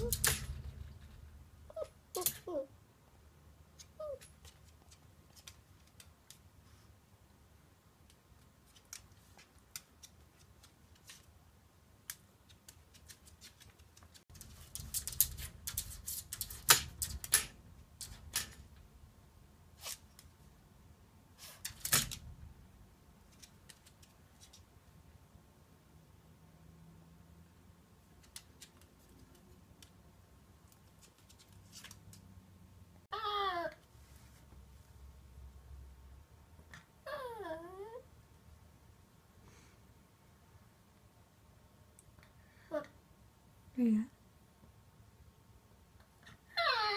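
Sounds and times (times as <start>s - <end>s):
dog claws clicking on wood floor: 12.1s - 18.6s.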